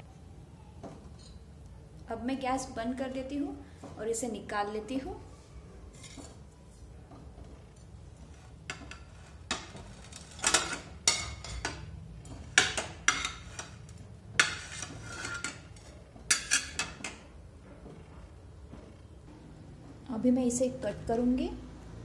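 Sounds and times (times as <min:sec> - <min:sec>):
metal spatula clinking on griddle: 0:08.7 - 0:11.9.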